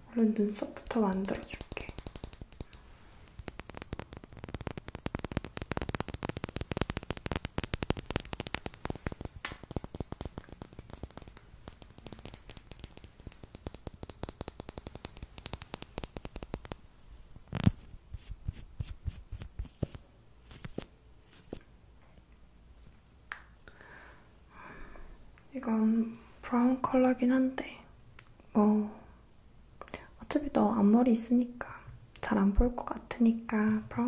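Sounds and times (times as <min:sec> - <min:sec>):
fingernails tapping on plastic tube: 0:01.2 - 0:16.8
plastic tube clicking open: 0:01.2 - 0:16.8.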